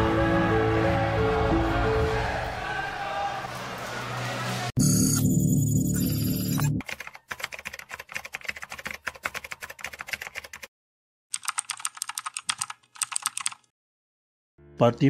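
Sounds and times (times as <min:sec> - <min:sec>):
keyboard key clicks: 0:11.4 - 0:13.6.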